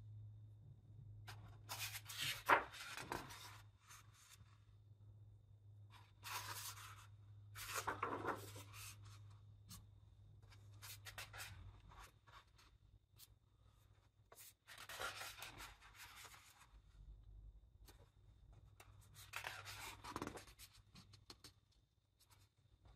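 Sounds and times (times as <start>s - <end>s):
faint steady hum: 0.0s - 22.9s
book pages turning: 1.7s - 4.1s, 6.0s - 9.3s, 14.3s - 16.7s, 18.7s - 21.5s.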